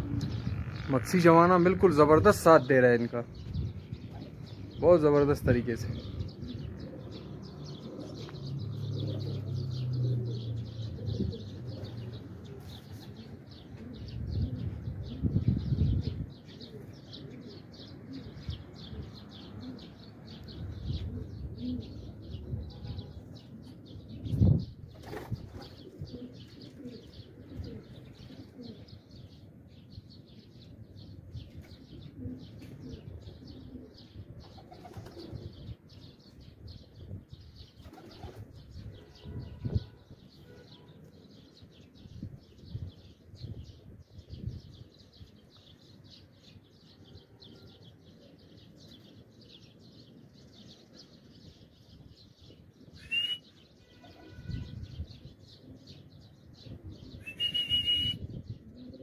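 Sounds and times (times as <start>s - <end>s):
pigeons cooing: 0.0s - 2.5s, 5.9s - 36.8s, 37.6s - 40.0s, 41.1s - 59.0s
pigeons flapping wings: 24.9s - 25.8s, 34.5s - 35.3s.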